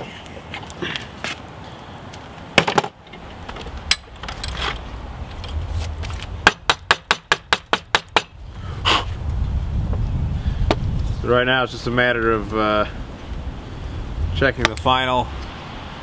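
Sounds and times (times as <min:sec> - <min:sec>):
wood and metal knocks: 0:02.6 - 0:04.5.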